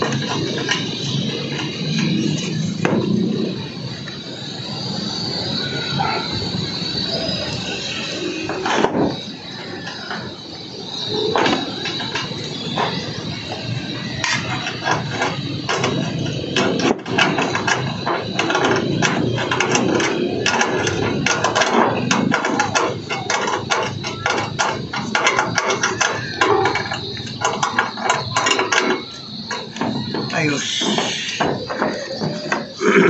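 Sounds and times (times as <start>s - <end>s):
tool scraping metal roof: 11.3s - 33.0s.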